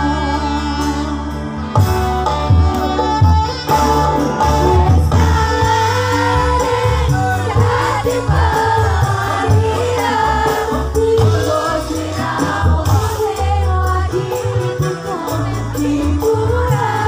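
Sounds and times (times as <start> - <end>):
live band playing: 0.0 - 17.0.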